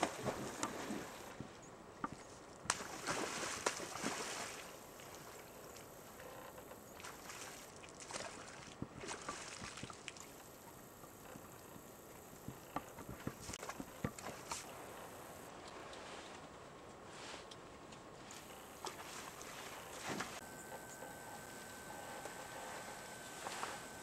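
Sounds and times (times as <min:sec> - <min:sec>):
water sloshing and splashing: 0:02.7 - 0:05.5, 0:07.0 - 0:10.5, 0:18.5 - 0:24.0.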